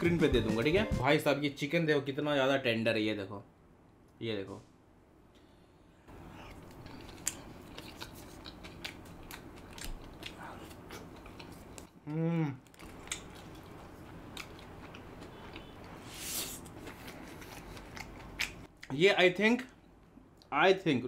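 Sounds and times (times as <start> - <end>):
close chewing with mouth clicks: 6.3 - 18.8
person humming mmm: 12.0 - 12.7.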